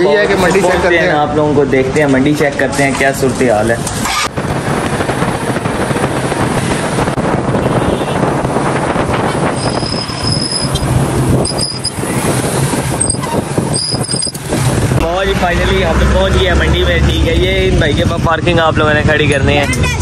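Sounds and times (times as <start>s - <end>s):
motorcycle engine and wind noise: 3.3s - 20.0s.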